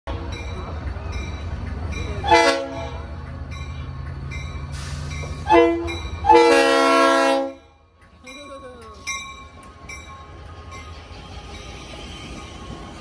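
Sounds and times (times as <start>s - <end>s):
locomotive air horn blasts: 2.3s - 3.0s, 5.5s - 7.7s.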